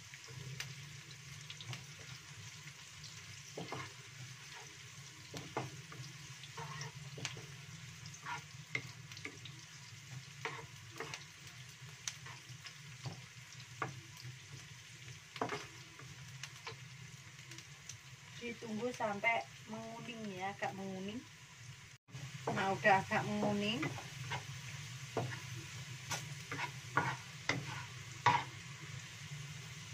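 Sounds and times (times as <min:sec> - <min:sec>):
shallots sizzling in oil: 0:00.0 - 0:29.9
spatula scraping a wok: 0:03.3 - 0:11.4, 0:12.2 - 0:13.3, 0:15.4 - 0:16.8, 0:22.4 - 0:28.7.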